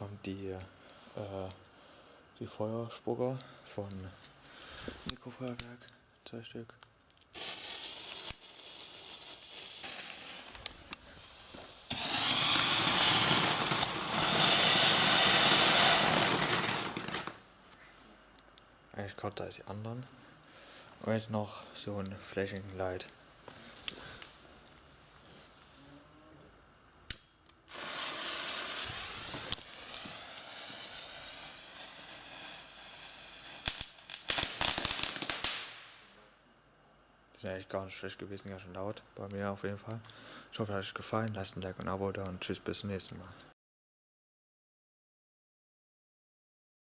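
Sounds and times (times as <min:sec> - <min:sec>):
firework fountains hissing: 0:07.3 - 0:17.4, 0:27.7 - 0:35.8
sharp firework cracks: 0:07.3 - 0:17.4, 0:27.1 - 0:36.2.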